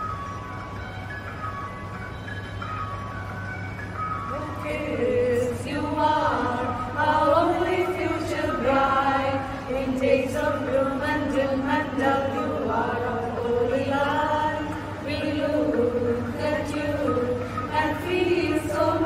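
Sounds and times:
women singing together: 4.3s - 19.0s.

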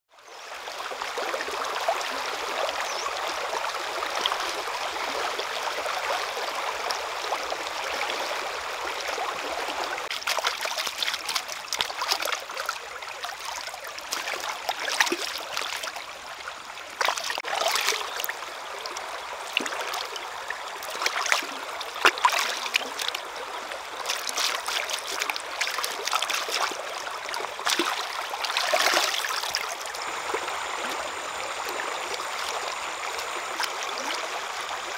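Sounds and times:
stream water flowing: 0.1s - 34.9s
splashing water: 9.2s - 16.3s, 16.9s - 34.9s.

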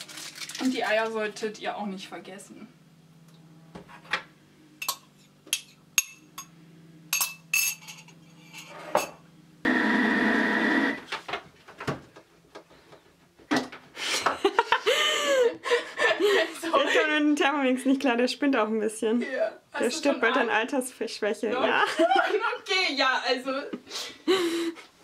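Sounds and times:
glass and dishes clinking: 7.1s - 8.2s.

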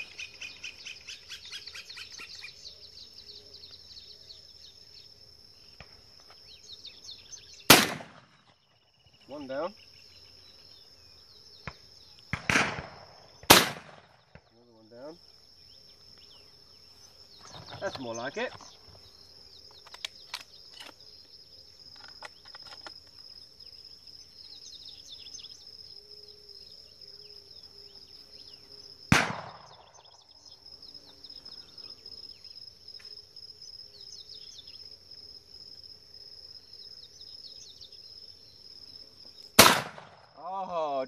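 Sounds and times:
insects buzzing: 0.0s - 41.0s
shotgun shot: 7.7s - 8.4s, 11.6s - 14.5s, 29.1s - 30.0s, 39.6s - 40.3s.

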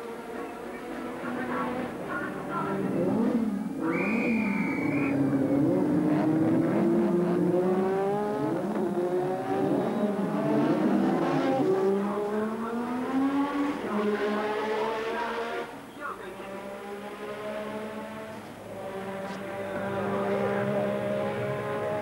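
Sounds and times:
racing car engines: 0.0s - 22.0s
short whistle blast: 3.8s - 5.2s.

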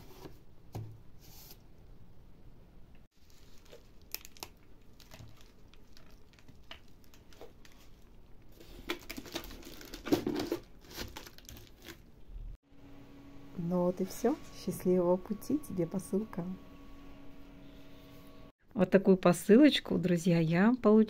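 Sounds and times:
bubble wrap crinkling: 3.2s - 12.1s.

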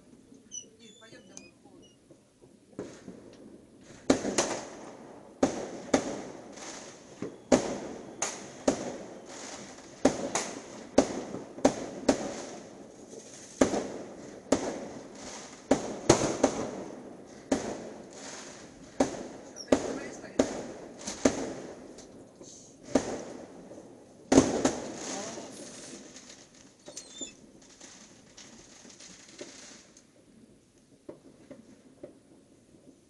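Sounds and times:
fireworks bangs: 0.0s - 33.0s.

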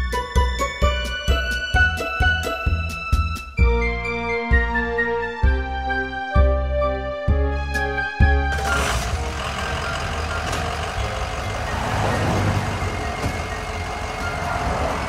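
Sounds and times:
truck engine running: 7.9s - 15.0s.

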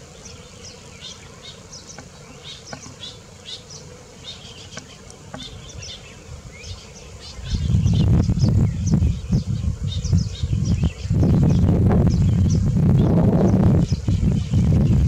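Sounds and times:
weaver birds chirping: 0.0s - 15.0s.

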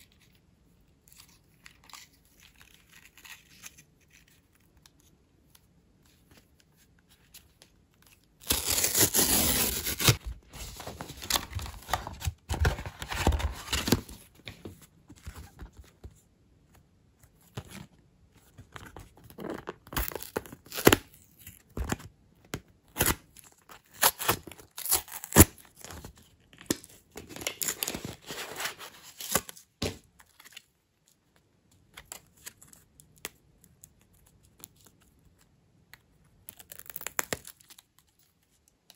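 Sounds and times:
packaging ripping: 8.4s - 10.2s, 23.8s - 26.0s
packaging rustling and crinkling: 8.4s - 16.0s.

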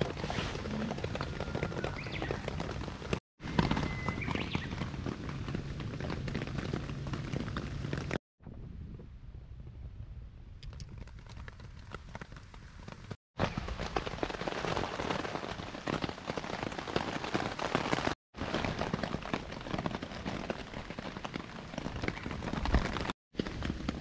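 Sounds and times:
rain on a tarp: 0.0s - 8.2s, 10.7s - 24.0s.

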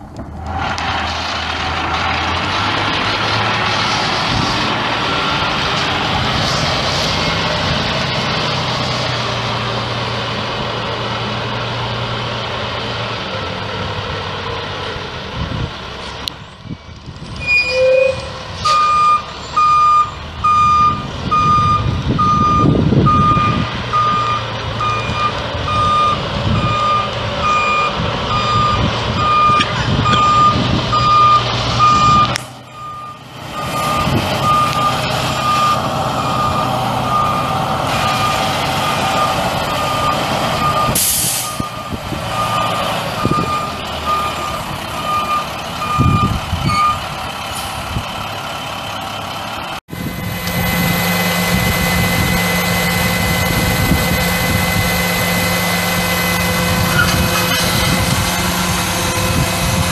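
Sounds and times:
diesel truck engine running: 0.0s - 59.9s
backup alarm beeping: 18.7s - 47.0s.

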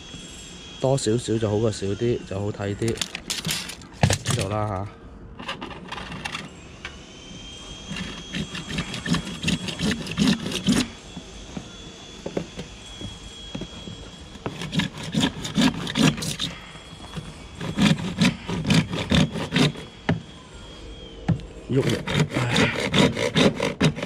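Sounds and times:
hand saw cutting pipe: 7.9s - 10.9s, 14.4s - 19.9s, 21.7s - 24.0s.

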